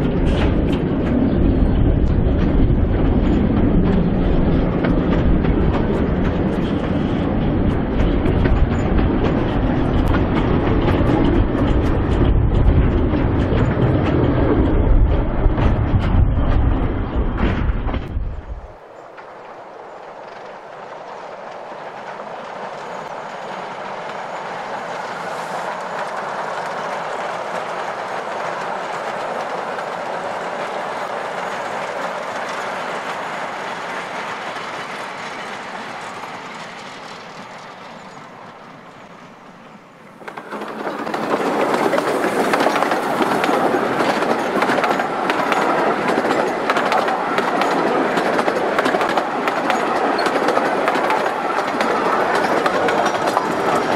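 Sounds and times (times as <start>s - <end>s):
steam train rushing past: 0.0s - 53.9s
carriage wheels clattering over rails: 40.1s - 53.9s.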